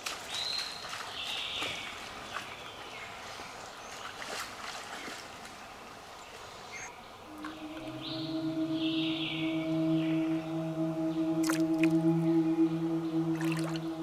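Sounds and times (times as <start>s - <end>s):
people wading through water splashing: 0.0s - 6.5s, 11.1s - 14.0s.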